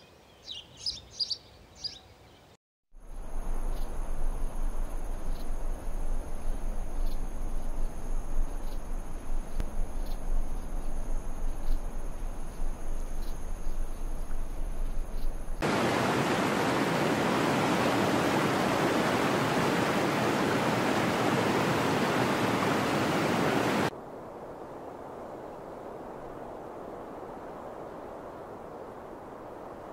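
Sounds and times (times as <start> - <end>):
insect trilling: 3.1 - 15.6
waterfall rushing: 15.6 - 23.9.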